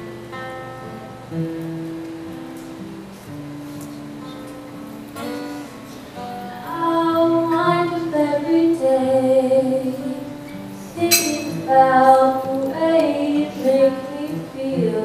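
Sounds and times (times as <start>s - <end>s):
acoustic guitar strummed and picked: 0.0s - 15.0s
woman singing: 6.6s - 15.0s.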